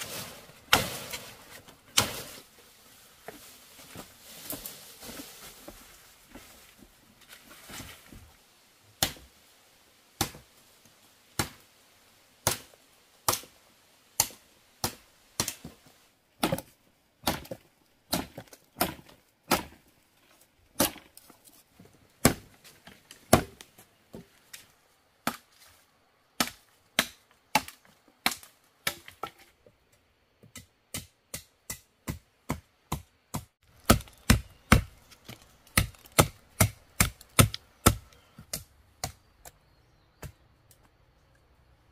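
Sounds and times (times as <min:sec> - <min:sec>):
blade chopping wood: 0:16.4 - 0:19.8, 0:22.2 - 0:22.5, 0:30.5 - 0:39.2.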